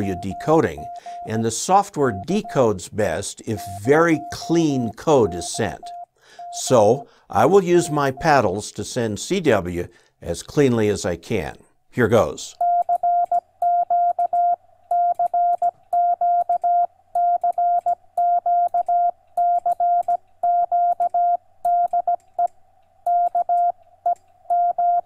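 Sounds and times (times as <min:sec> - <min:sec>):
morse code beeps: 0:00.0 - 0:02.7, 0:03.5 - 0:08.4, 0:12.6 - 0:22.2, 0:23.1 - 0:23.8, 0:24.5 - 0:25.0.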